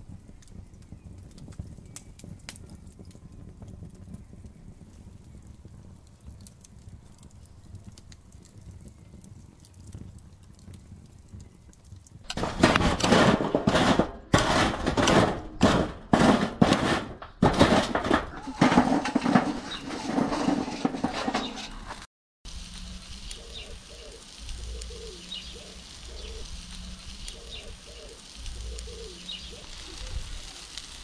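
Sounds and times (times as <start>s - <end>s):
charcoal clattering on metal tray: 12.3s - 22.1s
faint low rumble: 22.5s - 27.7s.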